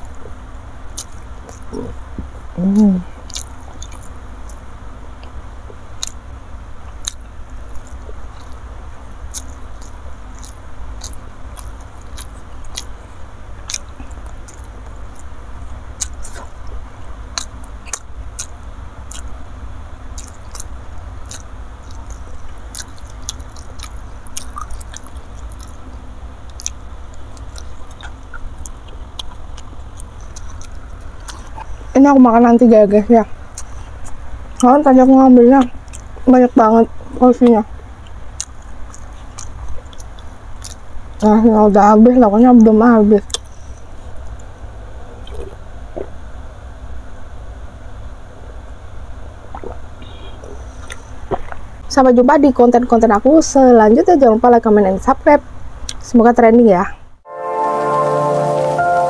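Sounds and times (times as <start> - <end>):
close chewing: 0.0 - 2.2, 3.2 - 6.2, 6.8 - 13.0, 13.6 - 15.4, 16.0 - 19.5, 20.1 - 32.0, 35.6 - 36.3, 38.0 - 41.3
steady low hum: 0.0 - 59.0
wet mouth clicks and smacks: 20.2 - 25.8, 49.5 - 49.8.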